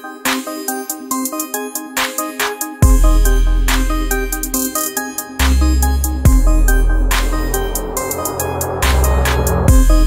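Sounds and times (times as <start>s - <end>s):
synth notes: 5.5s - 10.0s
deep bass hit: 5.7s - 10.0s.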